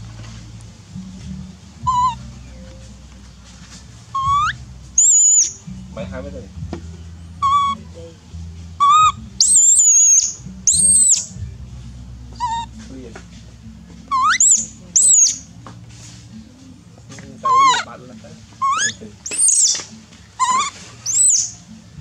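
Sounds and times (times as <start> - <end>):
baby monkey crying: 1.8 - 2.2, 4.1 - 5.6, 7.4 - 7.8, 8.8 - 11.3, 12.4 - 12.7, 14.1 - 15.4, 17.4 - 17.9, 18.6 - 21.6.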